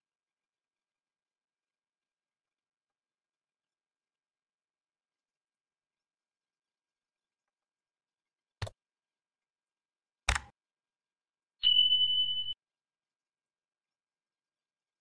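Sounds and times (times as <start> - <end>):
mouse clicks: 10.3 - 10.6
notification bell ringing: 11.6 - 12.6.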